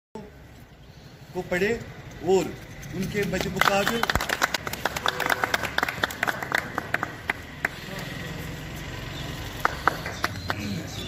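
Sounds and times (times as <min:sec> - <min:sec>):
group clapping: 0:03.1 - 0:08.2, 0:09.4 - 0:11.0.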